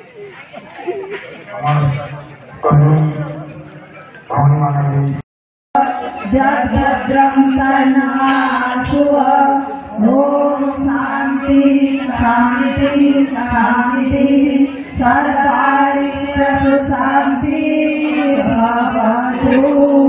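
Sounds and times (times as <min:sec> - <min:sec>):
women chanting hymn over loudspeakers: 0:05.8 - 0:20.0.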